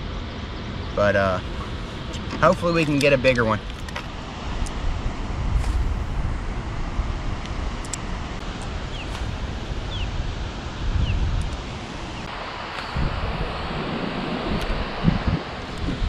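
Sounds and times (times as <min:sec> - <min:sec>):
rushing water: 0:00.2 - 0:16.0
wind buffeting microphone: 0:01.4 - 0:16.0.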